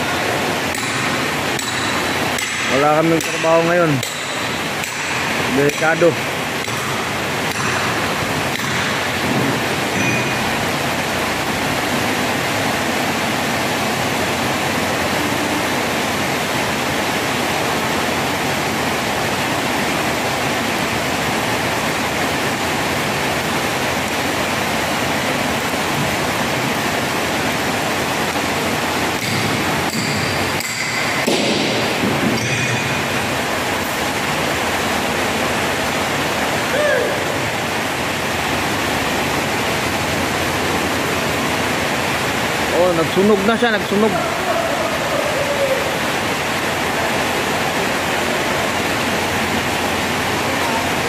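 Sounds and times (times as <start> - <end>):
heavy rain falling: 0.0 - 51.0.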